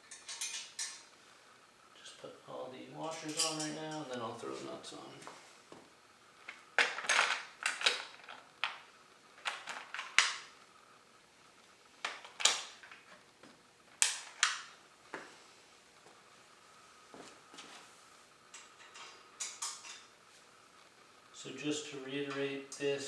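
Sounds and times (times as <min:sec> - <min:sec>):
metal hardware clinking: 0:00.0 - 0:01.0, 0:03.1 - 0:04.1.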